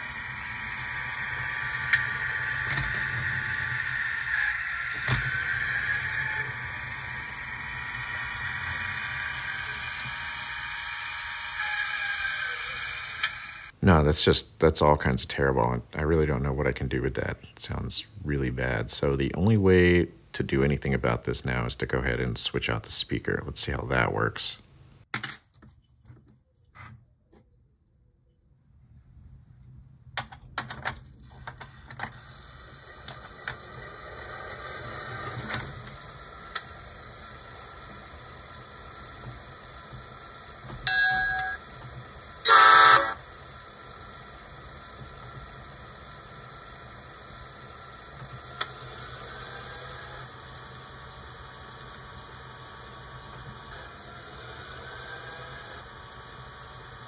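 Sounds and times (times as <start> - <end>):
horn blast: 42.5 - 43.2
short tone: 42.5 - 43.2.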